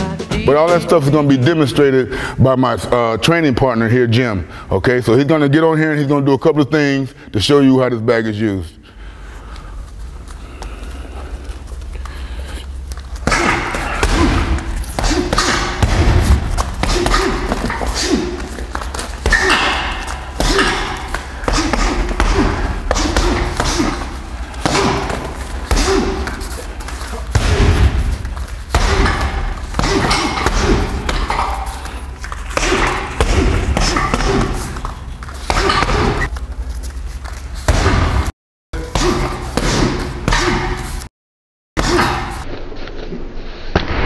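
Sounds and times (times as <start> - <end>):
punches and kicks on heavy bag: 13.2 - 18.6, 19.2 - 31.8, 32.5 - 34.8, 37.6 - 40.8.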